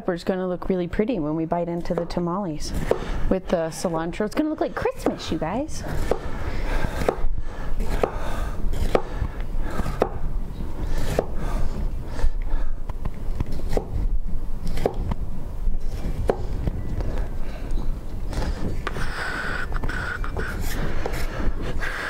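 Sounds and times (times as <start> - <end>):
knife chopping on cutting board: 5.9 - 6.3, 6.9 - 9.2, 11.0 - 11.4.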